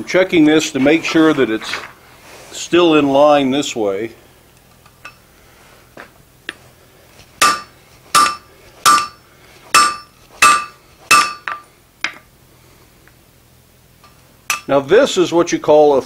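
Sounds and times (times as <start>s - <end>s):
hammer striking steel on anvil: 7.4s - 12.2s, 14.5s - 14.8s.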